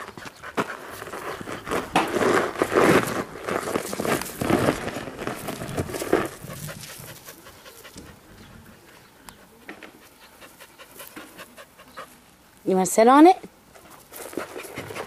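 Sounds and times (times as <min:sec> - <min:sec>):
scuffling on gravel: 0:00.0 - 0:07.9
dog panting: 0:06.2 - 0:12.2, 0:13.7 - 0:15.0.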